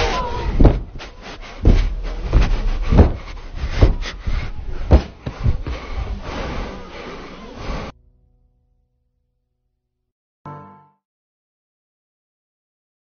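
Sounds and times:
heavy landing thumps: 0.0 - 7.9.

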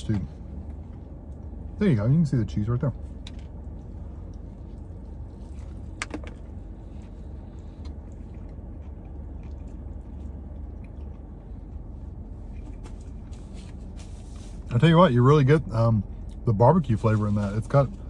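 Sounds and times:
low hum inside car cabin: 0.0 - 18.0
man chewing food: 3.1 - 13.5.

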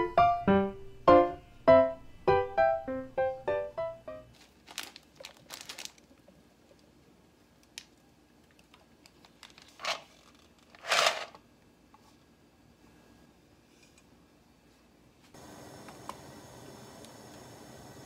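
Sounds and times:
plastic packet crinkling: 4.3 - 6.3, 8.5 - 11.4
metal colander clattering: 10.8 - 11.4.

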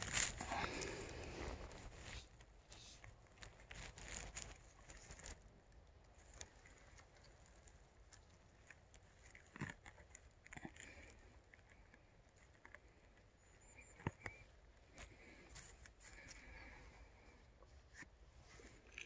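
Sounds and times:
dry leaf litter crackling: 0.0 - 5.4.

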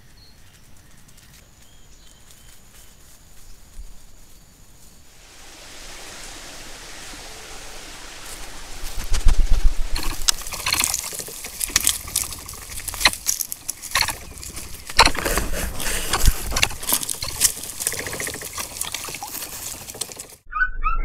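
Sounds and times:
rushing hiss: 4.9 - 12.9
clicks and crackles: 10.0 - 20.5.

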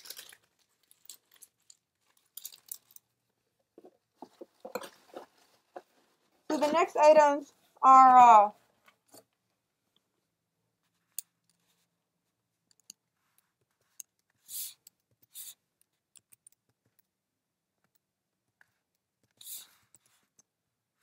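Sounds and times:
hands rummaging in packing material: 0.0 - 3.0
wrapping rustling: 0.0 - 3.0.

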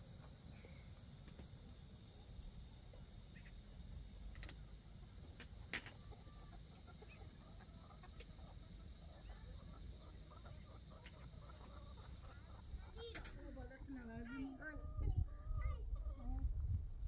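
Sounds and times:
steady high hiss: 0.0 - 15.2
chickens clucking: 5.3 - 13.8.

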